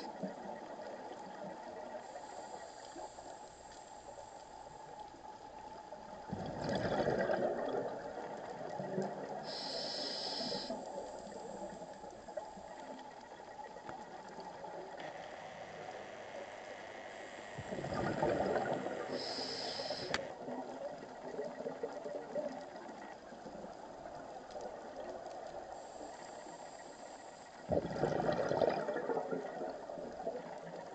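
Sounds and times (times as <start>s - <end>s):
steady watery hiss: 0.0s - 30.9s
exhaled bubbles: 6.2s - 9.8s, 17.6s - 22.8s, 27.6s - 30.9s
diver regulator breathing: 9.4s - 11.6s, 18.7s - 20.3s.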